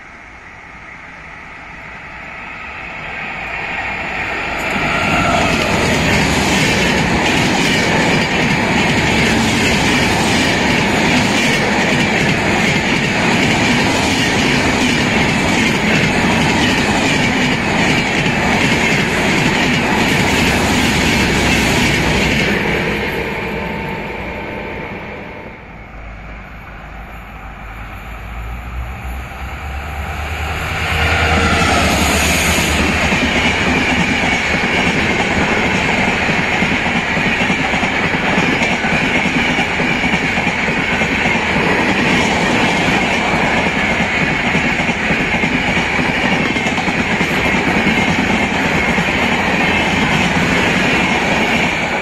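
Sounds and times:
train passing at speed: 0.0 - 52.0
train wheels rushing on rails: 0.0 - 52.0.

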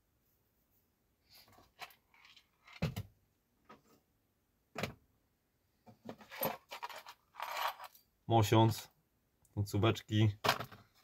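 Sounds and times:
plastic bin knocking and clattering: 2.8 - 3.1, 10.4 - 11.0.

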